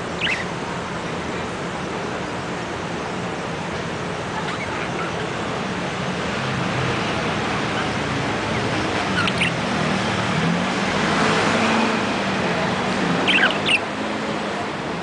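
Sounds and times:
budgerigar chirping: 0.1 - 0.5, 8.6 - 9.6, 13.2 - 13.8.

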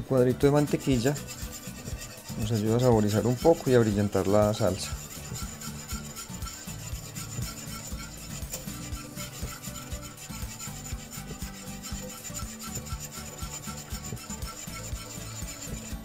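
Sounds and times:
whisk scraping a saucepan: 0.0 - 16.0.

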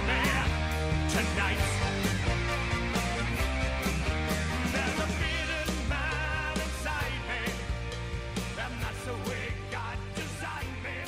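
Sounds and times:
rock music with drums bass guitar: 0.0 - 11.0.

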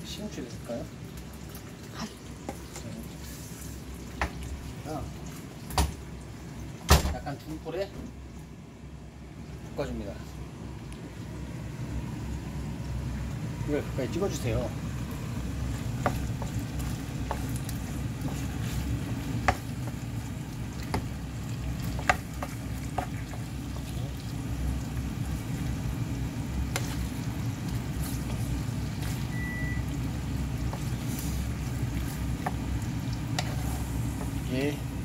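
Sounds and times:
food sizzling in frying pan: 0.0 - 6.9, 11.1 - 35.0
wooden spoon scraping pan: 15.8 - 19.9, 33.3 - 34.5.

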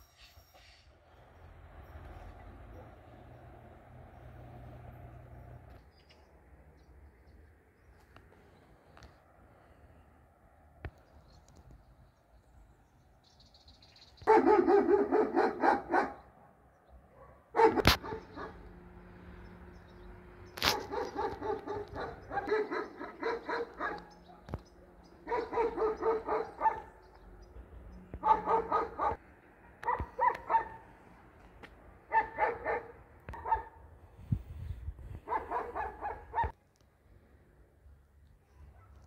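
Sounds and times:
dog barking: 14.2 - 16.3, 17.1 - 18.7, 20.6 - 24.6, 25.2 - 27.0, 28.2 - 30.9, 32.1 - 33.8, 35.2 - 36.6, 38.6 - 39.0.

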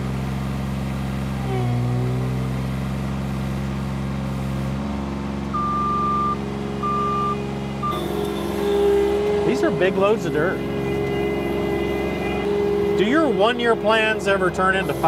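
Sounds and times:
loader engine running: 0.0 - 15.0
backup alarm beeps: 5.5 - 8.4.

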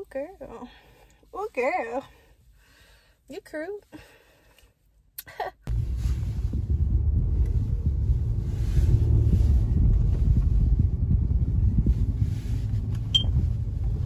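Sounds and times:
car road and engine noise: 5.7 - 14.0
wind on microphone: 5.7 - 14.0.

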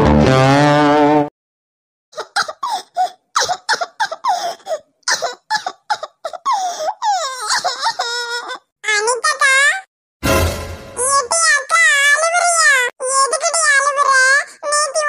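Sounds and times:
girl sobbing: 2.2 - 8.7
intro music: 10.2 - 11.0.

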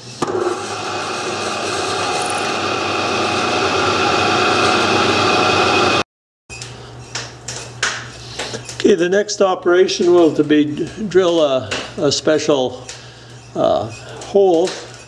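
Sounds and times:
drill press cutting aluminium: 0.2 - 6.0
lathe running quietly: 0.2 - 6.0.

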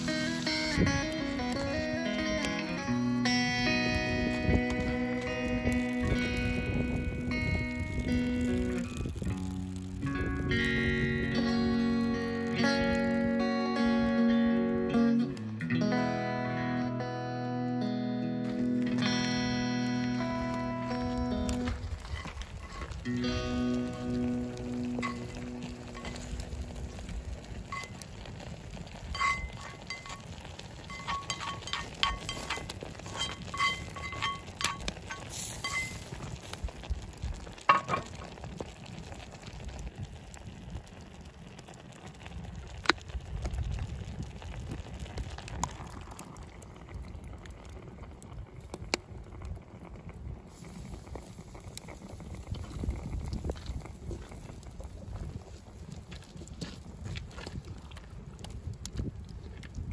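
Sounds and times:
metal utensil clinking against pot: 30.9 - 35.9.

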